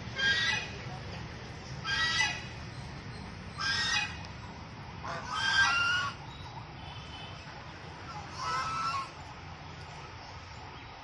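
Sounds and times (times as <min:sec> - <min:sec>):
geese honking: 0:00.1 - 0:00.8, 0:01.8 - 0:02.6, 0:03.5 - 0:04.3, 0:05.0 - 0:06.3, 0:08.0 - 0:09.3.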